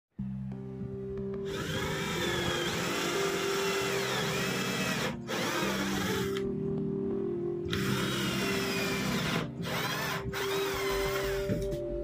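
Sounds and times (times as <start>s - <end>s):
background music: 0.2s - 12.0s
cordless drill whining: 1.5s - 6.4s, 7.7s - 11.6s.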